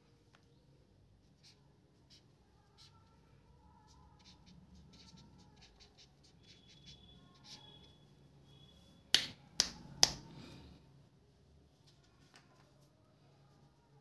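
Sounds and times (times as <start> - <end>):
marker squeaking on paper: 1.3 - 3.1, 3.8 - 8.7.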